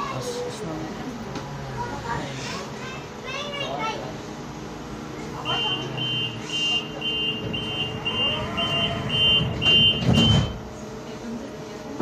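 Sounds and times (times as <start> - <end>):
tram door warning beeps: 5.4 - 10.7.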